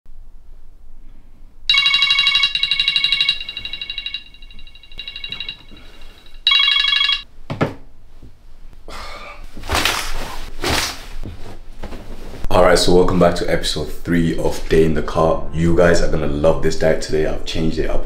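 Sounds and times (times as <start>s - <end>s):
phone alarm ringtone trilling: 1.7s - 7.2s
bedding rustling: 9.5s - 12.5s.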